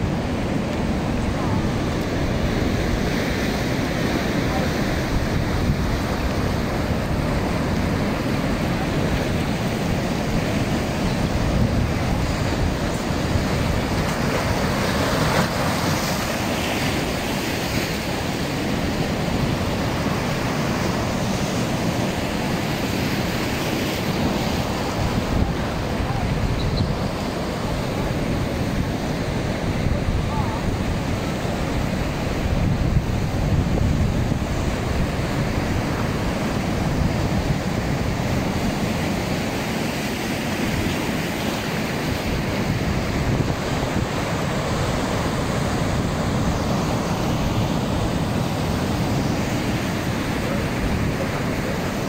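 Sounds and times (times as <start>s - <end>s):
surf breaking over rocks: 0.0s - 52.0s
wind on microphone: 0.0s - 52.0s.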